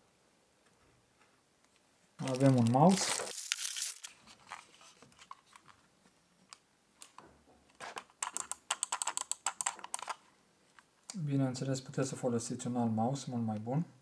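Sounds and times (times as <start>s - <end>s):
plastic bag crinkling: 2.2s - 5.8s
small plastic clicks and rattles: 8.0s - 10.2s.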